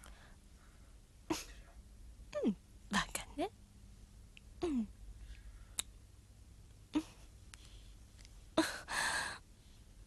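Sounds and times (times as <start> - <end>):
soft mouth click: 5.7 - 6.0
person breathing and gasping: 8.6 - 9.4.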